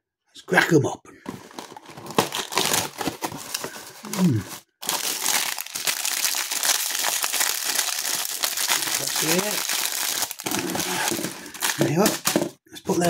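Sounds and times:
foil wrappers crinkling: 0:01.3 - 0:13.0
man humming: 0:04.1 - 0:04.5.

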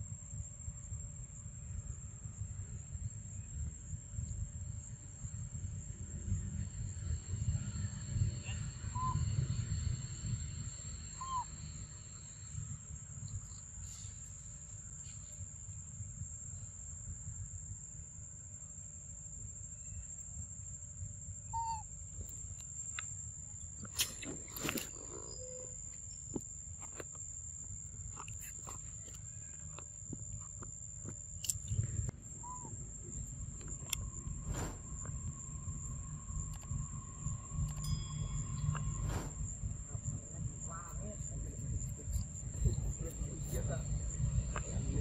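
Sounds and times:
rising and falling call: 0:11.1 - 0:11.5
low rumble: 0:31.6 - 0:45.0
thin high whine: 0:31.9 - 0:43.9.

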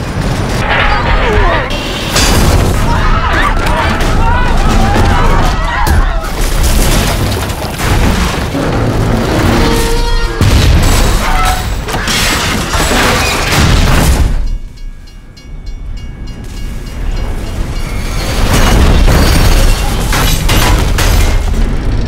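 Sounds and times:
train carriages crashing and scraping: 0:00.0 - 0:22.0
railroad crossing bell ringing: 0:14.4 - 0:18.5.

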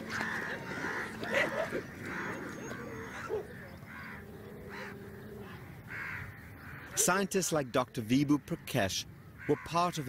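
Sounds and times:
dogs yelping and barking: 0:00.0 - 0:05.6.

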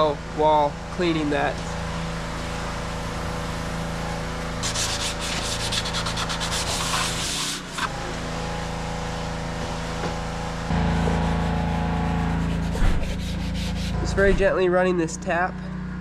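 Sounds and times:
steady low hum: 0:00.0 - 0:07.2, 0:08.0 - 0:16.0
sandpaper scratching on metal: 0:04.6 - 0:07.9, 0:12.3 - 0:14.3.

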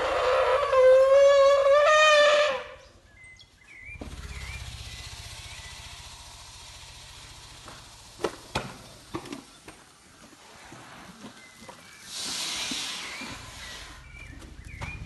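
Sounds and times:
elephant high-pitched call: 0:00.0 - 0:02.9
elephant low rumble: 0:00.0 - 0:08.2, 0:12.3 - 0:15.0.

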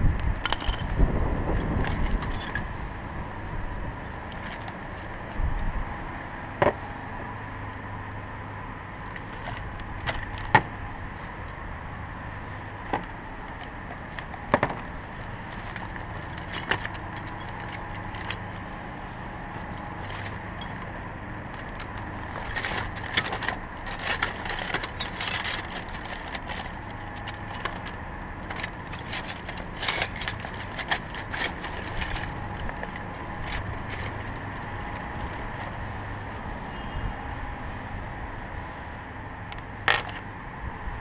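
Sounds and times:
metal wrenches clinking: 0:00.4 - 0:02.7, 0:04.3 - 0:05.1, 0:12.9 - 0:18.7, 0:19.4 - 0:35.8.

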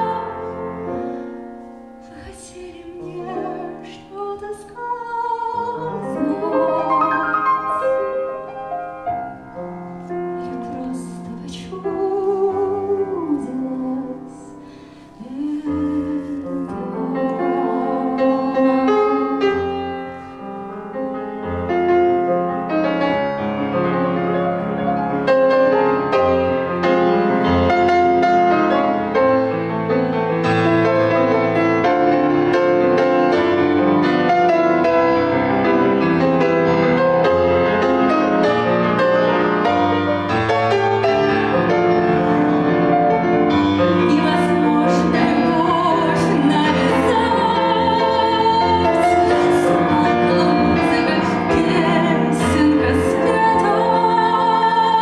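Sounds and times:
grand piano: 0:00.0 - 0:55.0
woman singing with vibrato: 0:02.0 - 0:08.0, 0:10.4 - 0:14.6, 0:15.2 - 0:19.7, 0:43.9 - 0:55.0.

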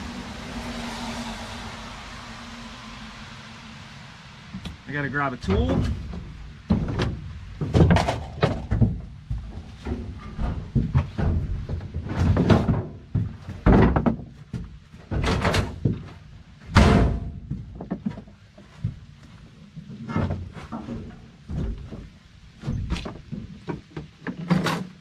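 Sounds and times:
irregular thunks and knocks: 0:05.4 - 0:16.1.

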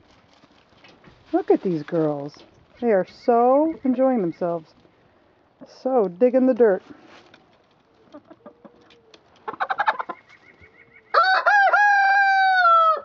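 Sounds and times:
hen clucks: 0:07.9 - 0:11.2
rooster crowing: 0:11.1 - 0:13.0.

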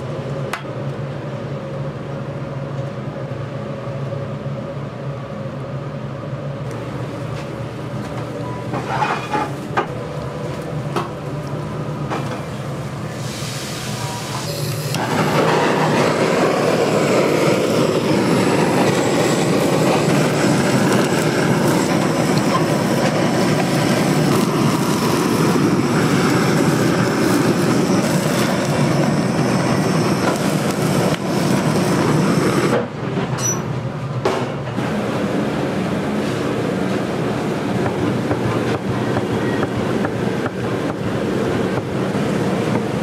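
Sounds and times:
blowtorch flame roaring: 0:00.0 - 0:43.0.

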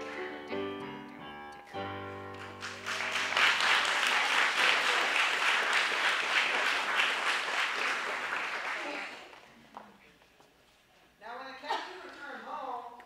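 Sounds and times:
audience applause: 0:02.3 - 0:09.4.

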